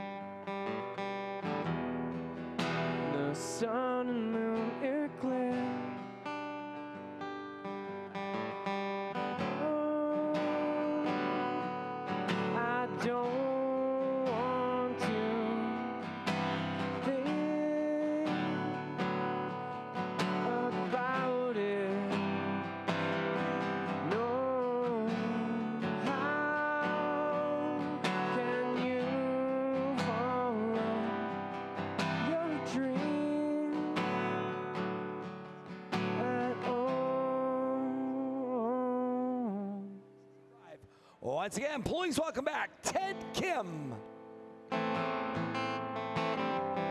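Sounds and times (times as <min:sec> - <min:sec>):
acoustic guitar strumming: 0:00.0 - 0:46.9
man singing: 0:03.0 - 0:06.1, 0:09.4 - 0:11.7, 0:12.4 - 0:19.1, 0:20.3 - 0:22.7, 0:23.9 - 0:34.4, 0:36.1 - 0:40.0, 0:40.7 - 0:44.1.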